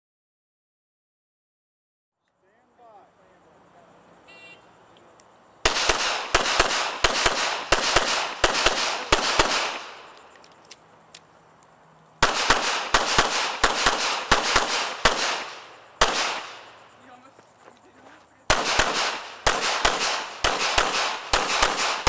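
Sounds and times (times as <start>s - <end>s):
pistol shots with echo: 5.6s - 10.2s, 12.2s - 16.8s, 18.5s - 22.0s.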